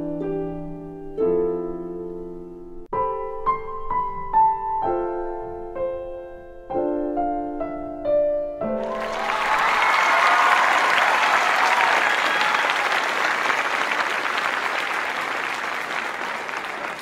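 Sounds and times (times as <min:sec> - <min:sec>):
crowd applauding: 0:08.8 - 0:17.0.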